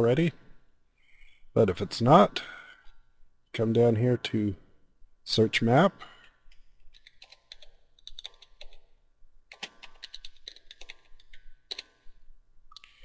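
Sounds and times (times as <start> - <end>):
computer keyboard typing: 6.5 - 13.0.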